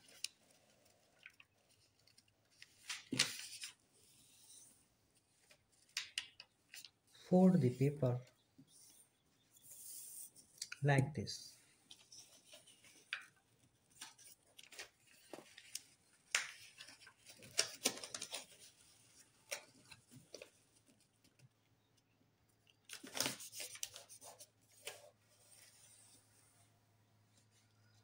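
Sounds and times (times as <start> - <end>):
paper rustling and crinkling: 0.0 - 4.5, 11.9 - 21.1, 22.9 - 26.1.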